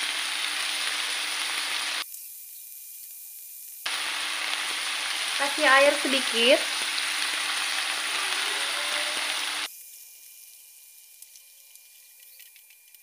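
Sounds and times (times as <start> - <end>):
food sizzling in a wok: 0.0 - 12.3
small crackles: 9.8 - 13.0.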